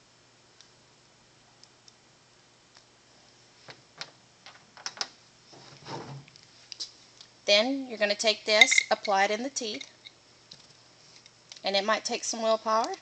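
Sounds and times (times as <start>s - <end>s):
metal parts clicking down: 8.6s - 10.0s.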